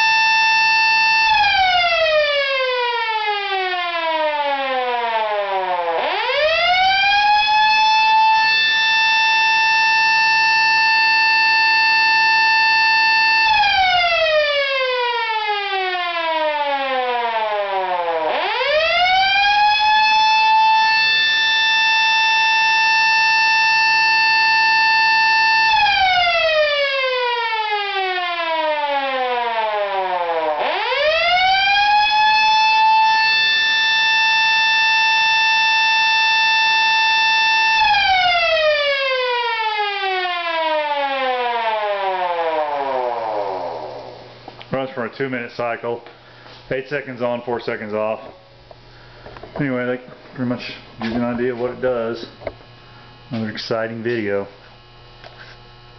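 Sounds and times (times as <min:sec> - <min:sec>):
electromechanical siren wailing: 0:00.0 - 0:44.6.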